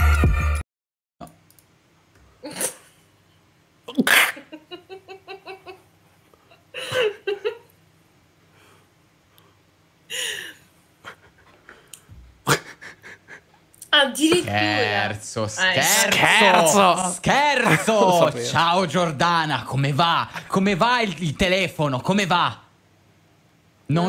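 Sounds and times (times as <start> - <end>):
people laughing: 4.4 - 5.8, 6.5 - 7.7, 12.5 - 13.5, 15.9 - 18.6.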